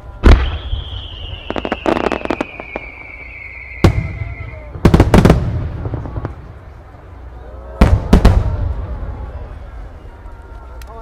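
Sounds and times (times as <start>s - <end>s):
firework whistle falling in pitch: 0.1s - 4.8s
crackling firework pops: 0.2s - 6.4s
firework bangs: 0.2s - 6.8s, 7.8s - 9.3s.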